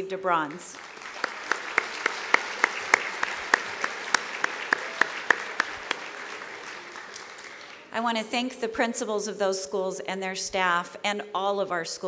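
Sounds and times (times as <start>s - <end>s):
audience applauding: 0.7s - 7.9s
sharp near claps: 0.7s - 7.9s.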